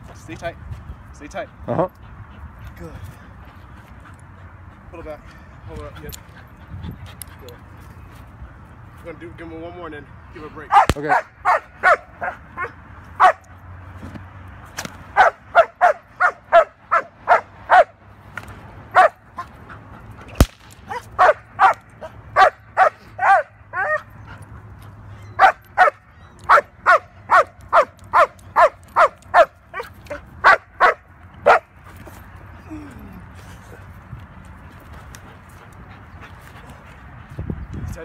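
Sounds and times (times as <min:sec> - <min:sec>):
dog barking: 0:10.7 - 0:13.4, 0:15.2 - 0:17.9, 0:19.0 - 0:19.2, 0:20.9 - 0:24.0, 0:25.4 - 0:31.7
sharp crack: 0:10.8 - 0:11.2, 0:20.3 - 0:20.9.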